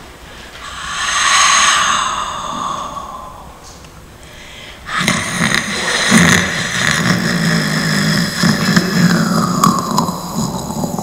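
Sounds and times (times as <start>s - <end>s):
rough low drone: 0.0s - 4.4s, 5.6s - 11.0s
sustained sound: 0.5s - 4.9s.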